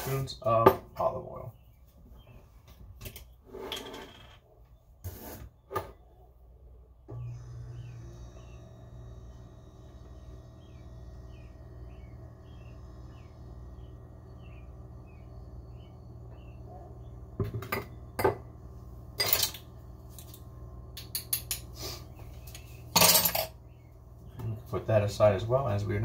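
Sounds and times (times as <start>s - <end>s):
low hum: 6.0s - 26.0s
bird chirps: 10.2s - 17.3s
kitchen utensils clinking: 19.2s - 19.6s, 22.9s - 23.6s.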